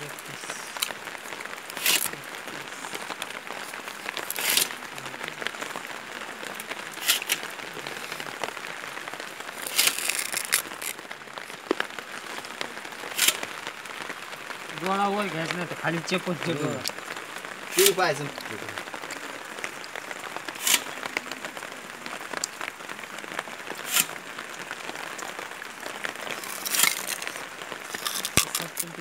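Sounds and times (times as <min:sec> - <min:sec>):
blade crunching through cane: 0:01.8 - 0:02.1, 0:04.3 - 0:04.7, 0:07.0 - 0:07.5, 0:09.6 - 0:11.0, 0:13.1 - 0:13.4, 0:20.6 - 0:20.9, 0:23.9 - 0:24.1, 0:26.4 - 0:28.9.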